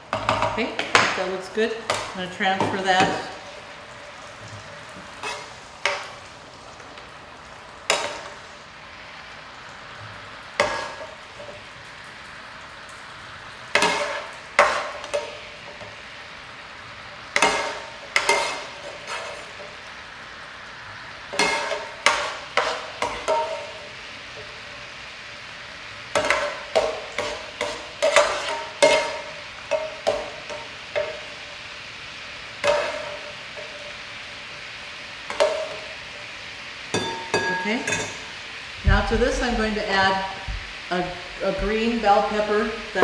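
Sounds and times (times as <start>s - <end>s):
chicken sizzling in skillet: 0.0s - 43.0s.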